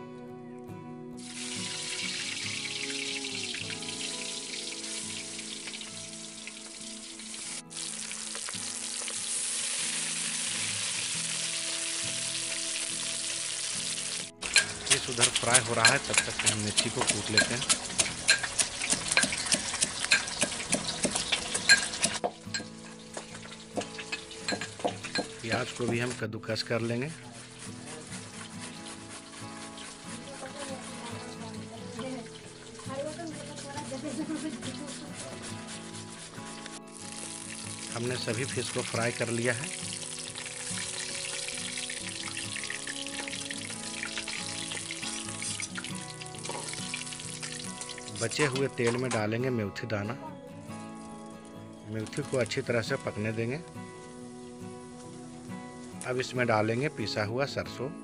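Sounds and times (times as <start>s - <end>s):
fish sizzling in oil: 1.2s - 49.2s, 50.7s - 56.9s
pestle pounding in steel mortar: 14.5s - 22.7s.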